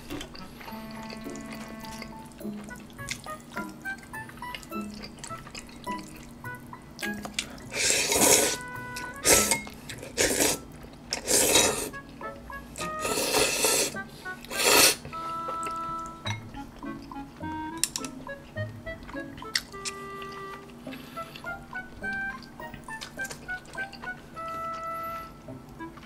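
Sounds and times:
noodles being slurped: 0.0s - 16.1s
quiet background music: 0.0s - 26.0s.

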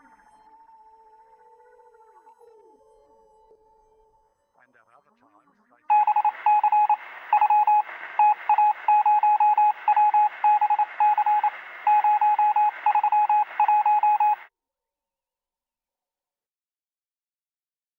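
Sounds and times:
electronic beeping tone: 5.9s - 14.5s.

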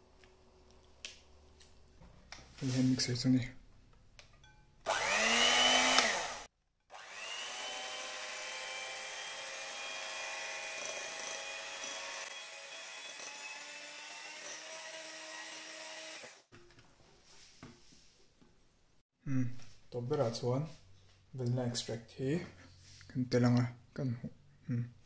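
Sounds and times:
electric hand mixer whine: 4.9s - 16.5s.

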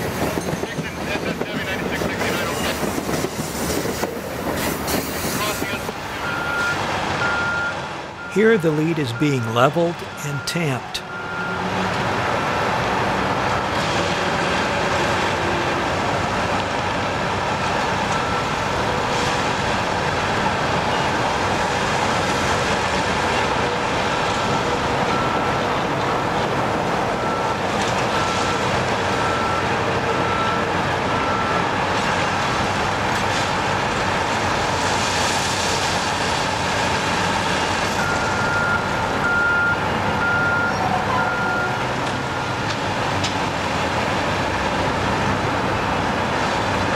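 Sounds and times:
backup alarm beeping: 6.2s - 11.6s.

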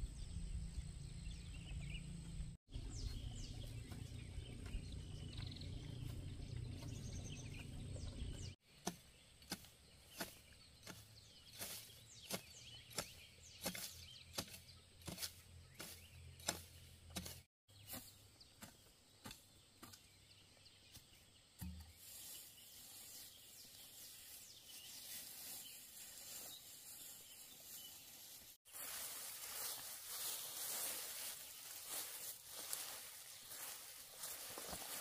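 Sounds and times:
hoe chopping into dry soil: 8.7s - 20.2s
soft steady rustling: 22.0s - 35.0s.

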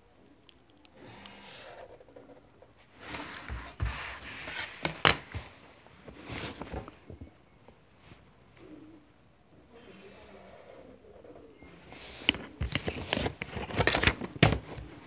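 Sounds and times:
pen scratching along ruler: 1.0s - 2.0s, 3.0s - 5.0s
ruler scraping and rustling: 2.9s - 6.9s, 11.9s - 15.0s.

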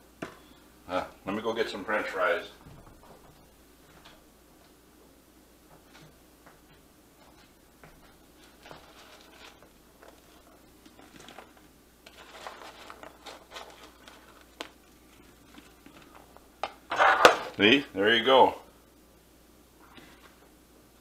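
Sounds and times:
fries rustling on paper plate: 7.2s - 17.7s.

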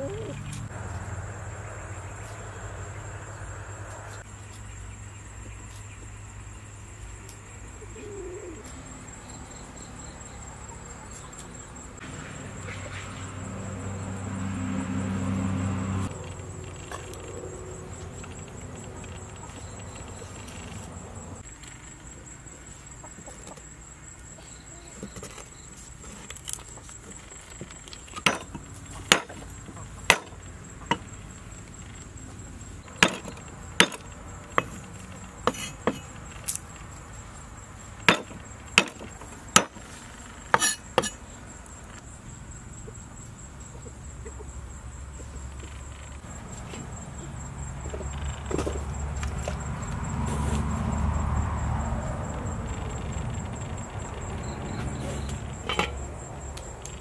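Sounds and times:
cleaver chopping on wooden board: 28.2s - 29.4s, 30.1s - 31.0s, 33.0s - 34.0s, 38.1s - 39.8s.

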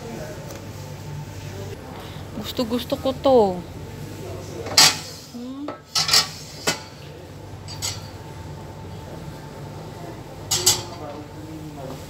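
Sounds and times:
dishes clinking on wire rack: 4.7s - 5.1s, 5.7s - 7.0s, 7.7s - 8.2s, 10.5s - 11.0s.

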